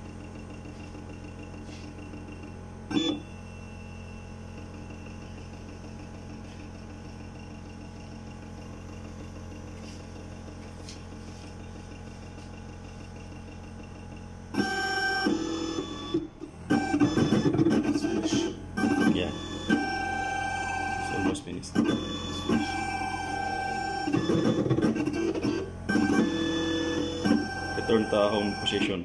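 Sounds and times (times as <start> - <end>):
milling machine motor hum: 0.0 - 29.0
loud pitched machine sounds: 11.2 - 29.0.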